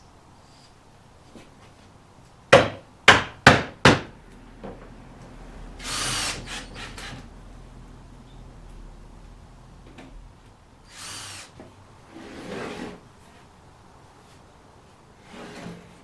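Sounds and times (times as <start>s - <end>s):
cordless drill driving screw: 5.8s - 7.2s, 10.9s - 11.6s.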